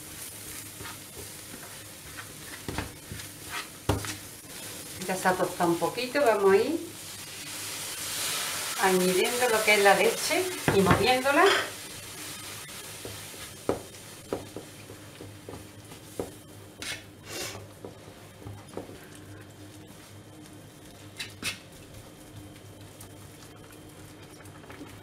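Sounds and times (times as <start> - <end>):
whisk tapping and scraping a pan: 0.0 - 6.4, 9.2 - 17.1, 20.9 - 23.0
hot pan hissing: 0.0 - 17.7.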